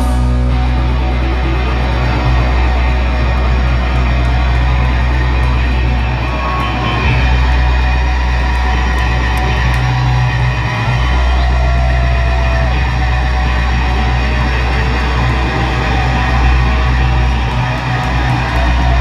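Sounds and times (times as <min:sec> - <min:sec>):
punk rock band playing live: 0:00.0 - 0:19.0.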